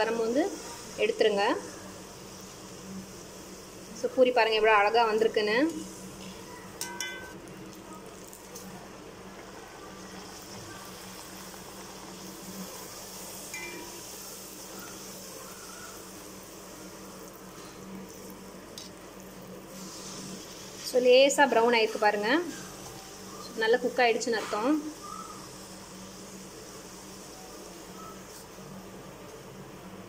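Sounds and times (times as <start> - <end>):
dough deep-frying in oil: 0.0 - 30.0
metal spoon clinking on pan: 6.8 - 7.4, 13.5 - 14.0.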